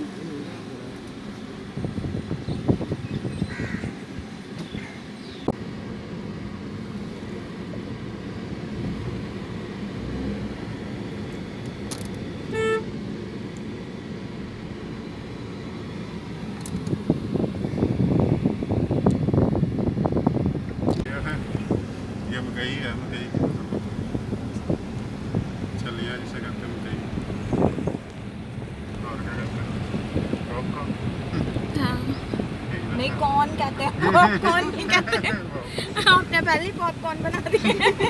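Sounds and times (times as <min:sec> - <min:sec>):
car rumbling on dirt road: 0:00.0 - 0:38.0
crows cawing: 0:03.5 - 0:04.0
vehicle horn toot: 0:12.4 - 0:13.0.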